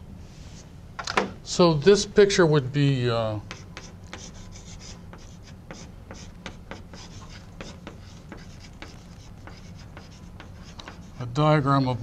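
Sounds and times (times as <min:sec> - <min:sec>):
chalk tapping and scratching: 0:03.5 - 0:12.0.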